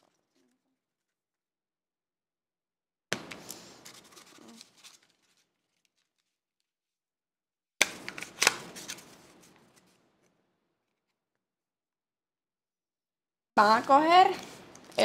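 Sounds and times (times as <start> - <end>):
paper rustling and crinkling: 3.2 - 6.7, 7.9 - 11.2.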